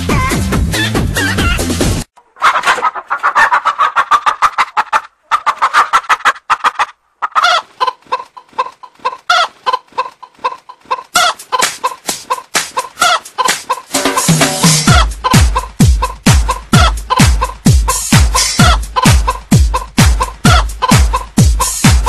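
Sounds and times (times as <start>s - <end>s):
music: 0.0s - 2.1s, 11.2s - 22.0s
chicken clucking: 0.1s - 22.0s.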